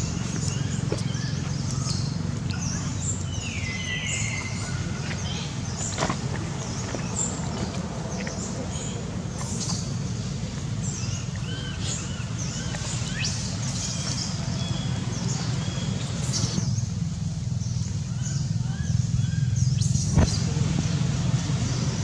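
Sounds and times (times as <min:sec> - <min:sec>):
high chirping calls: 0:00.0 - 0:06.0.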